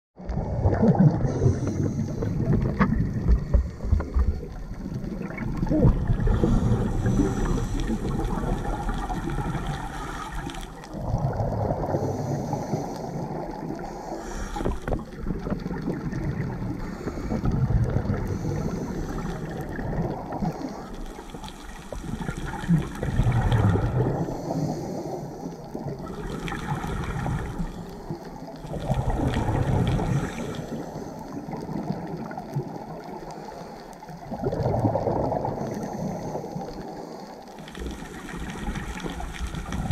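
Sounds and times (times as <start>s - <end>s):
gurgling exhaust bubbles: 0.2s - 14.0s, 14.6s - 24.5s, 25.6s - 33.2s, 34.1s - 36.7s, 37.7s - 39.9s
regulator inhale hiss: 6.2s - 9.0s, 9.6s - 10.9s, 11.9s - 15.1s, 16.8s - 17.5s, 18.2s - 19.6s, 20.4s - 22.4s, 24.1s - 25.8s, 29.9s - 31.4s, 35.6s - 38.4s.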